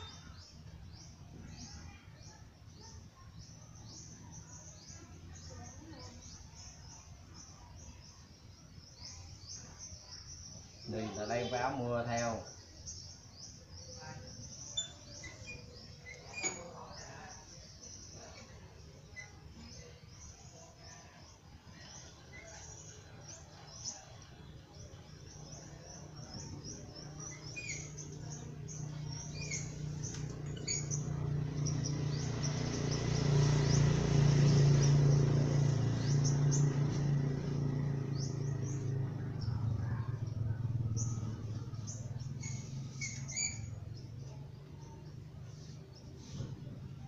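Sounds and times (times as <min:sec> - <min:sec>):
small birds chirping: 0:00.0 - 0:47.0
passing vehicle engine drone: 0:26.0 - 0:47.0.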